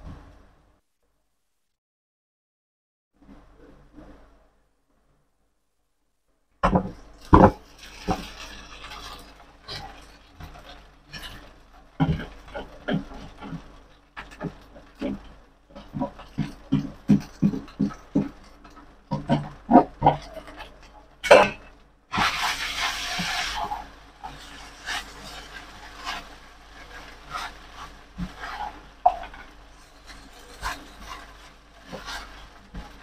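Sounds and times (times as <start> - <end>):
spatula scraping a pan: 6.8 - 33.0.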